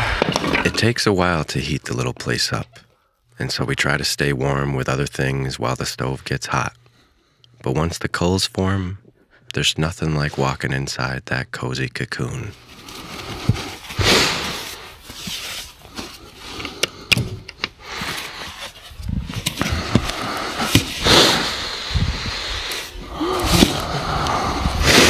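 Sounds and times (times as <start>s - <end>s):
gloved hands brushing snow: 19.7s - 22.9s.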